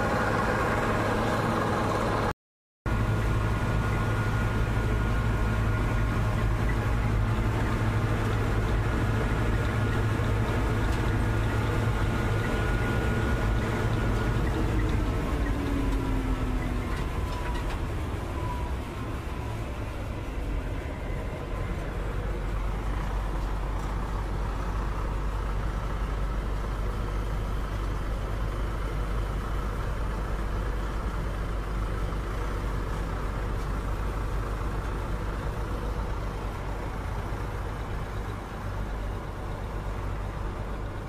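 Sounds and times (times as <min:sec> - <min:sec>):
combine harvester engine drone: 0:00.0 - 0:02.3, 0:02.9 - 0:41.0.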